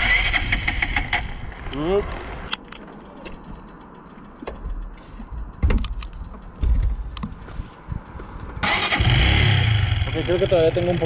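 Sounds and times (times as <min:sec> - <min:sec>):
low thumps: 0:04.5 - 0:10.2.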